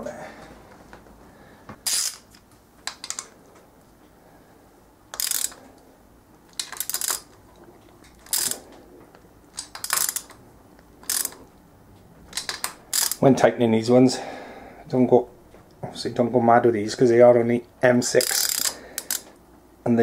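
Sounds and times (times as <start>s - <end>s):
socket ratchet clicking: 1.8s - 3.3s, 5.1s - 5.6s, 6.5s - 7.4s, 8.1s - 8.6s, 9.5s - 10.4s, 11.0s - 11.5s, 12.3s - 13.2s, 18.2s - 19.4s.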